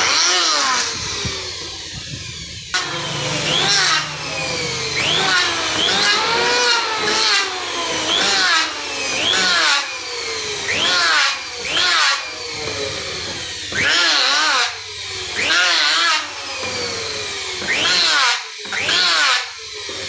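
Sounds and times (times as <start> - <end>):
electric planer shaving wood: 0.0 - 20.0.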